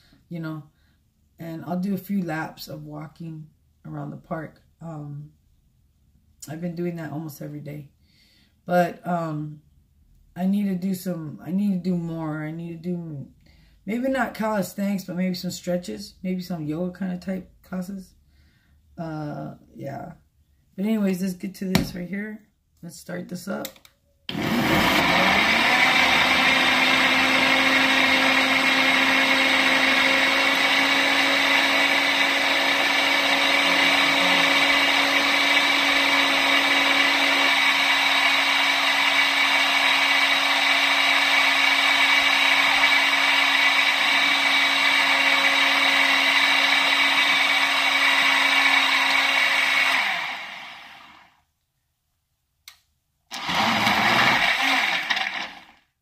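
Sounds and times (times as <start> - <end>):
blender motor running: 24.3 - 51.4, 53.3 - 55.8.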